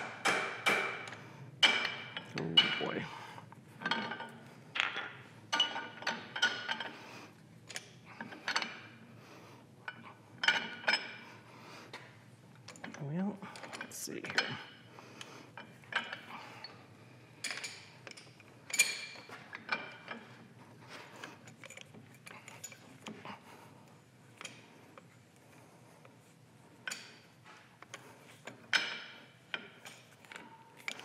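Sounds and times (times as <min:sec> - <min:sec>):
metal clinking and scraping: 0:15.6 - 0:31.0.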